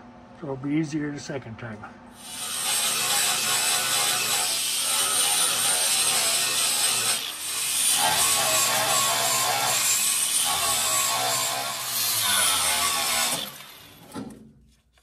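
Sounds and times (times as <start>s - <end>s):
angle grinder grinding metal: 2.2s - 14.1s.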